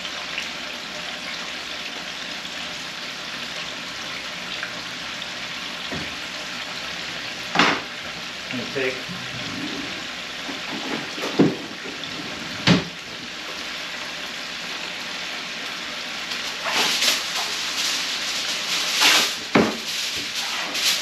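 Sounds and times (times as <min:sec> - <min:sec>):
chicken sizzling in oil: 0:00.0 - 0:21.0
kitchen wrap crackling: 0:07.8 - 0:14.0, 0:14.6 - 0:21.0.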